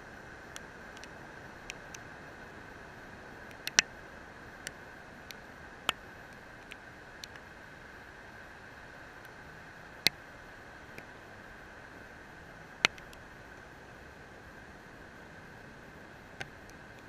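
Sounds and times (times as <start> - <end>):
steady hiss with high whine: 0.0 - 17.0
sharp ticks: 3.5 - 3.9, 12.8 - 13.2.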